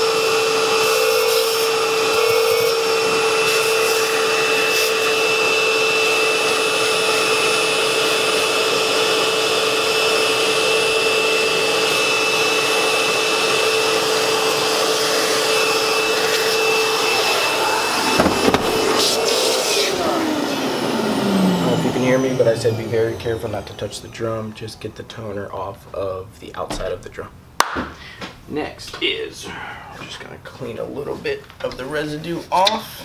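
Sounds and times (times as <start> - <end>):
vacuum cleaner whine: 0.0 - 25.7
hose knocking: 18.1 - 19.2.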